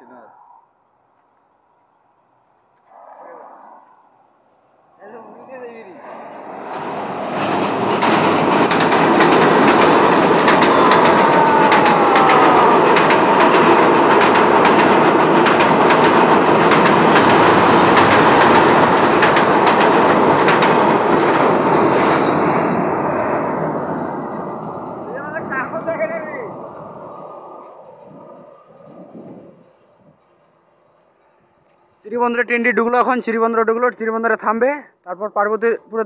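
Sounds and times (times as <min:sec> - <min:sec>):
train rumbling over bridge: 0:04.0 - 0:34.3
wheels clattering over rail joints: 0:05.8 - 0:25.9.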